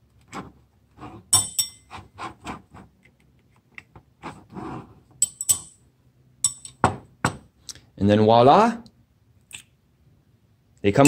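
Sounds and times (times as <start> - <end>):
metal pin clinking on steel: 6.4 - 6.8.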